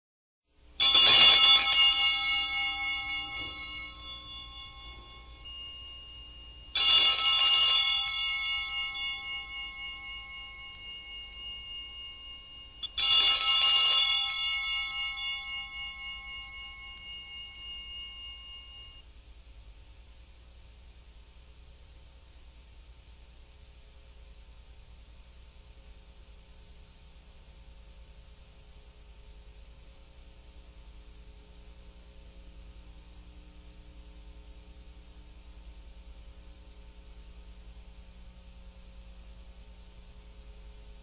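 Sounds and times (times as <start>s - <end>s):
hand bells jangling: 0.8s - 19.0s.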